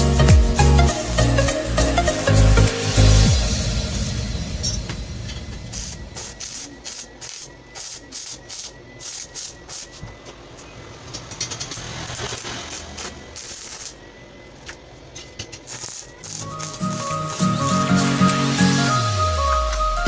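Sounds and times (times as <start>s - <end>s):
music: 0.0s - 5.6s, 16.2s - 20.0s
welding arc crackling and popping: 5.3s - 10.4s, 11.0s - 20.0s.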